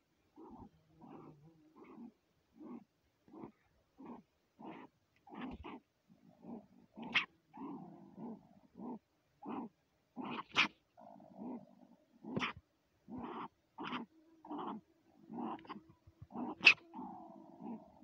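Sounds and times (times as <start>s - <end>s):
marten growling: 14.0s - 18.0s
marten sharp calls: 16.4s - 16.9s.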